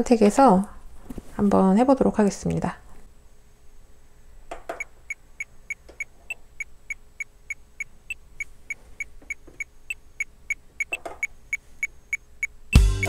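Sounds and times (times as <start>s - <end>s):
metronome clicking: 9.6s - 12.6s.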